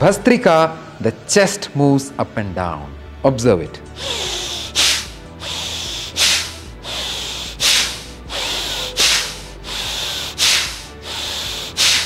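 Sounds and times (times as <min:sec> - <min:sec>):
rhythmic forceful breathing: 0:03.8 - 0:12.0.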